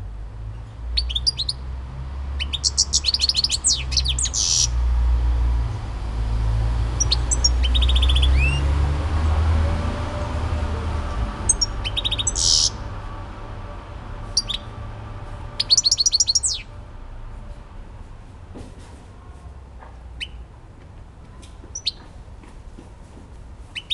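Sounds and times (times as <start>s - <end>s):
goldfinch twittering song: 1.0s - 1.6s, 2.4s - 4.8s, 7.0s - 8.6s, 11.5s - 12.8s, 14.4s - 14.7s, 15.6s - 16.7s, 21.7s - 22.0s.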